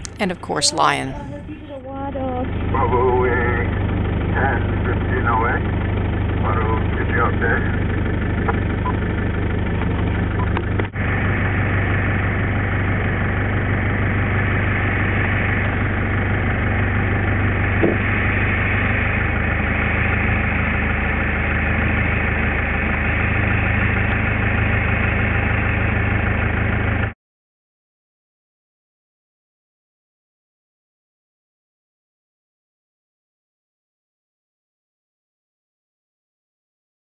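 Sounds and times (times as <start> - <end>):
vehicle engine idling: 1.1 - 27.1.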